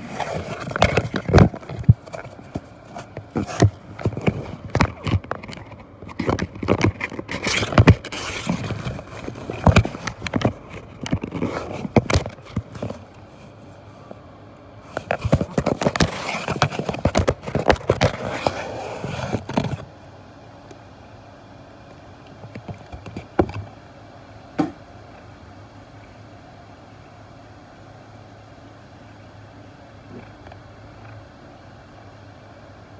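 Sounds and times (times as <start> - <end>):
kitten scratching cardboard: 0.0 - 13.2, 14.8 - 19.9.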